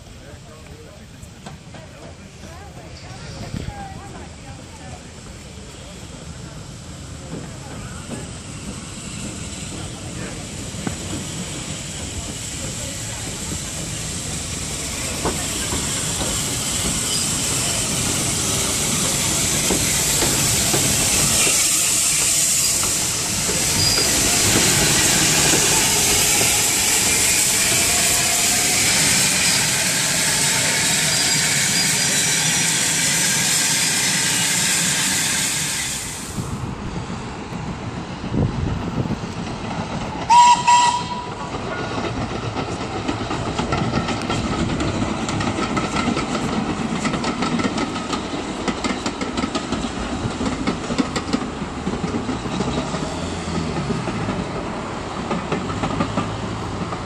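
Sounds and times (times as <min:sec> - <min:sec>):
distant train rolling: 0:00.0 - 0:57.0
steam locomotive hissing: 0:00.0 - 0:57.0
steam whistle blast: 0:40.3 - 0:41.4.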